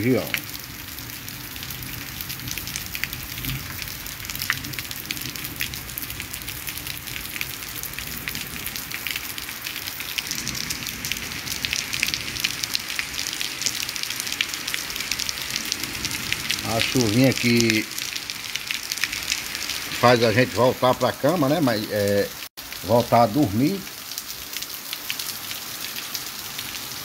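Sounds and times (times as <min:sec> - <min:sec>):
rain falling on street: 0:00.0 - 0:27.0.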